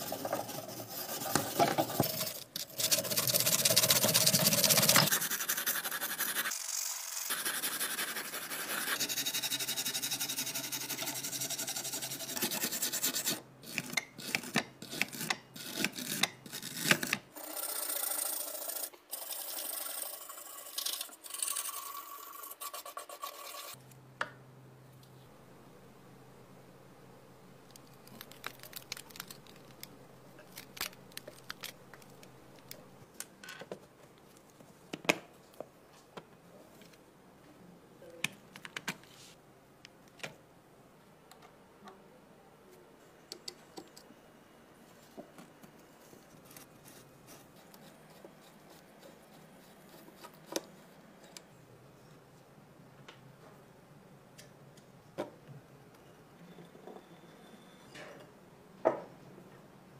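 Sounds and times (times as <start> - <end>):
screwdriver scraping: 0.0 - 5.5.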